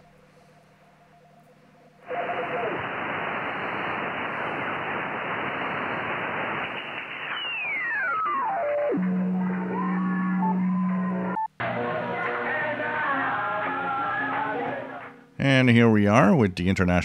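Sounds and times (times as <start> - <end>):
low radio hum: 1.3 - 11.8
radio static hiss: 2.0 - 9.6
falling radio whistle: 2.0 - 11.3.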